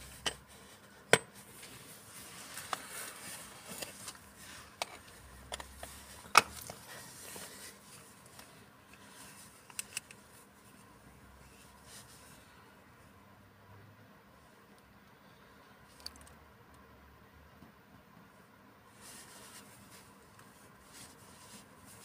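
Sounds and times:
glove fabric rustling: 0:00.1 - 0:05.2, 0:19.0 - 0:22.0.

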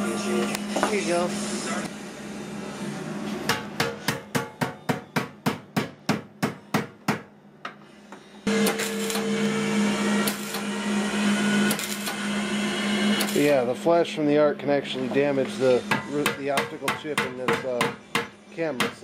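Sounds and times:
hammer beating on steel tank: 0:03.5 - 0:07.3, 0:15.9 - 0:19.0
power tool motor running: 0:08.4 - 0:13.7.

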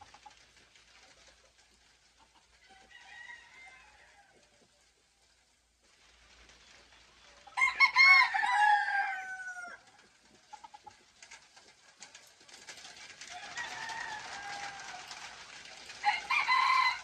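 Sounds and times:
light rain pattering: 0:00.0 - 0:17.0
distant rooster crowing: 0:02.7 - 0:04.4, 0:07.6 - 0:09.9, 0:13.3 - 0:15.4, 0:16.0 - 0:17.0
rooster crowing: 0:02.7 - 0:04.4, 0:07.6 - 0:09.9, 0:13.3 - 0:15.4, 0:16.0 - 0:17.0.

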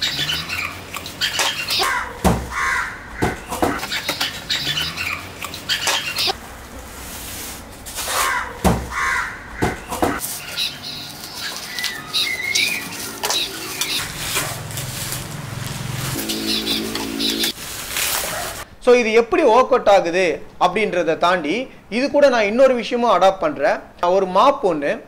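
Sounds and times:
birds calling: 0:00.0 - 0:06.4, 0:08.1 - 0:14.8, 0:16.0 - 0:17.6
plastic wrapping rustling: 0:10.2 - 0:18.7
packing tape ripping: 0:11.1 - 0:16.4, 0:17.4 - 0:18.6.

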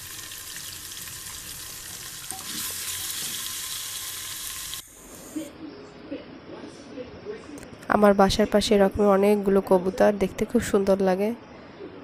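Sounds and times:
spices sizzling in hot oil: 0:00.0 - 0:05.2.

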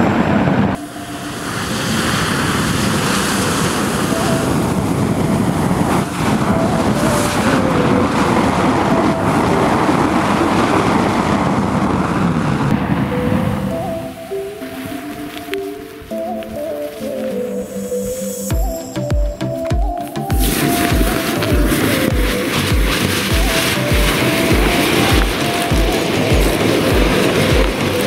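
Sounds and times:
sparklers burning with rushing hiss: 0:00.9 - 0:11.2, 0:20.2 - 0:28.0.

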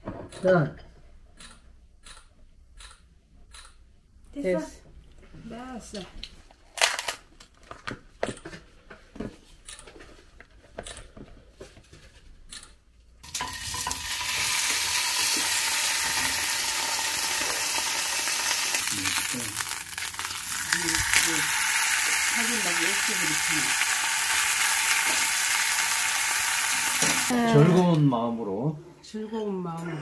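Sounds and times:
loud steady sizzling: 0:13.2 - 0:27.5.

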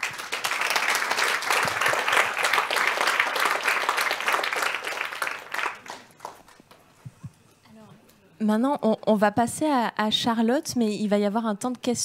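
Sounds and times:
audience applauding: 0:00.0 - 0:06.9.

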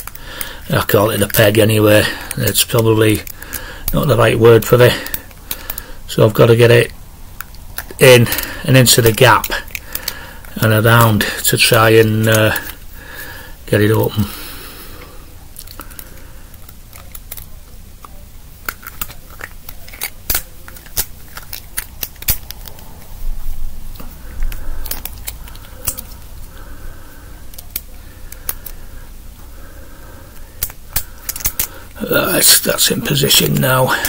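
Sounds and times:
pick wire clicking in padlock: 0:09.0 - 0:10.6, 0:18.6 - 0:22.8, 0:24.5 - 0:26.2, 0:27.5 - 0:28.8, 0:30.6 - 0:31.7.

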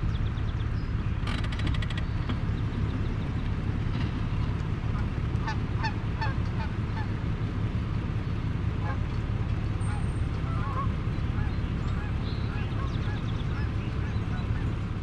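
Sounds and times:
vehicle engine idling: 0:00.0 - 0:15.0
geese honking: 0:04.8 - 0:07.3, 0:08.7 - 0:14.9.

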